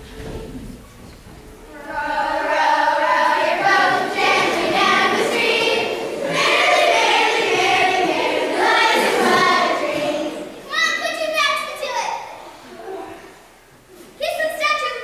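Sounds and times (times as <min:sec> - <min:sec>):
children singing together: 0:01.6 - 0:10.7.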